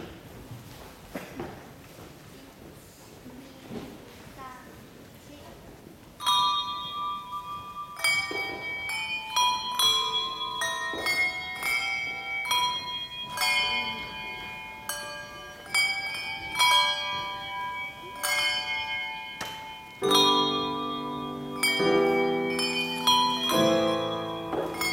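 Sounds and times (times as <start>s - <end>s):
handbells ringing: 6.2s - 24.9s.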